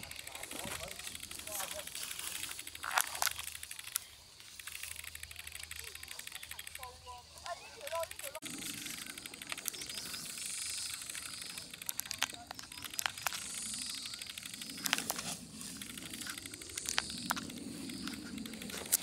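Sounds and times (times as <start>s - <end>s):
footsteps through dry grass: 0.0s - 3.8s
sharp clicks: 0.0s - 19.0s.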